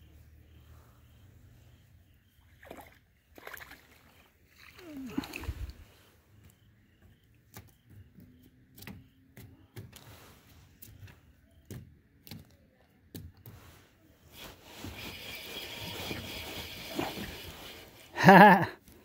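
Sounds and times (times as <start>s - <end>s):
hiss: 14.4s - 18.2s.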